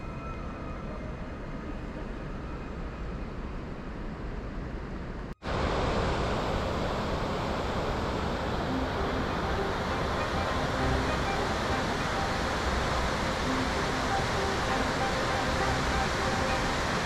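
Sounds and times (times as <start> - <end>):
flowing river water: 5.5 - 17.0
waterfall roar: 5.5 - 17.0.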